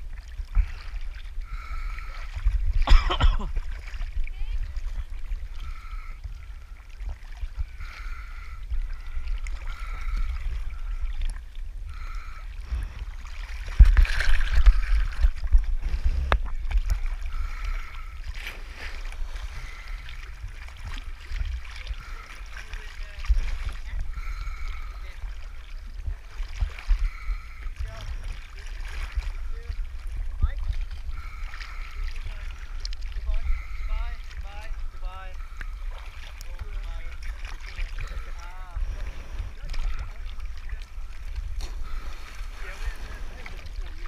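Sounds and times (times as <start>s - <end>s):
muffled water sloshing: 0.0s - 44.0s
water splash: 12.0s - 25.5s, 35.5s - 44.0s.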